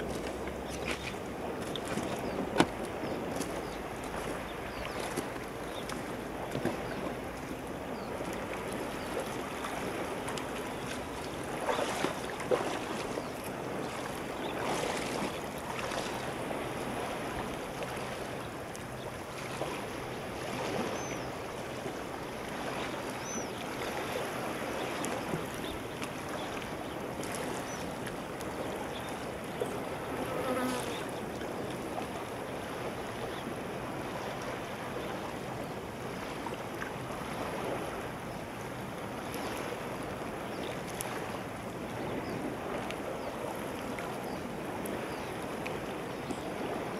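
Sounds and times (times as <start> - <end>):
boots splashing through water: 0.0 - 19.8
shallow sea water washing: 0.0 - 46.9
wind: 0.0 - 46.9.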